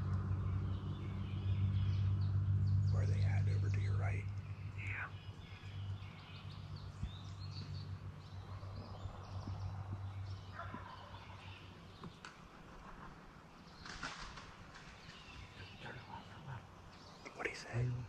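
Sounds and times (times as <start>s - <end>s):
faint turkey gobbling: 15.6s - 18.0s.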